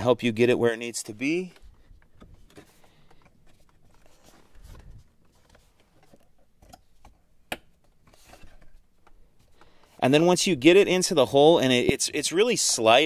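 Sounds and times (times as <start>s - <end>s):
faint rustling: 1.5s - 6.4s.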